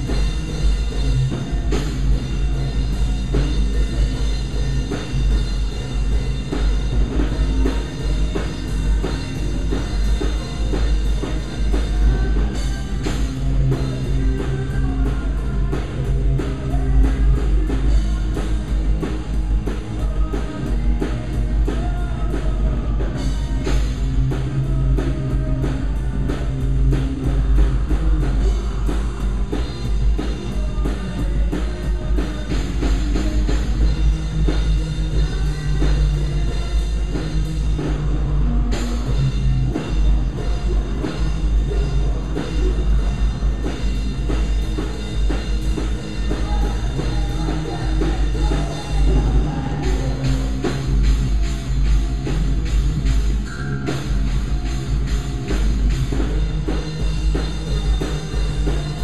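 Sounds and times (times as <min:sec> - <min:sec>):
rock band playing live: 0:00.0 - 0:59.0.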